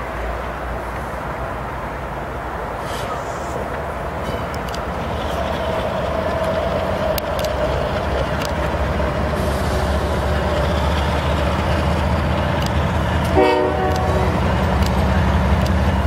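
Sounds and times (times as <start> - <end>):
diesel locomotive engine rumble: 0.0 - 16.0
locomotive horn chord: 13.2 - 14.4.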